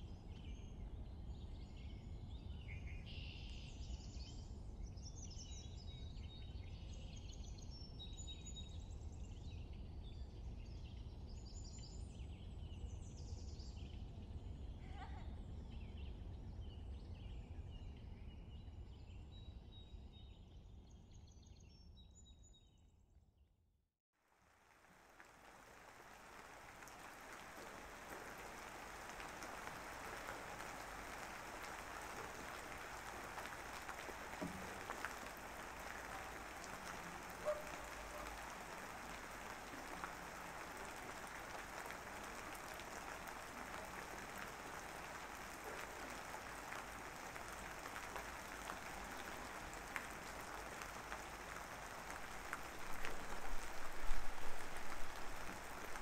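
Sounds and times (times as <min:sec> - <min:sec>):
rain hissing: 0:24.3 - 0:56.0.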